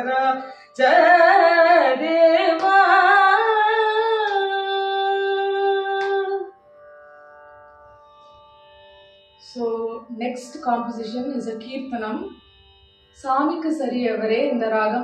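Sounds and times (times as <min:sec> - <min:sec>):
woman singing: 0:00.0 - 0:06.5, 0:09.5 - 0:12.4, 0:13.2 - 0:15.0.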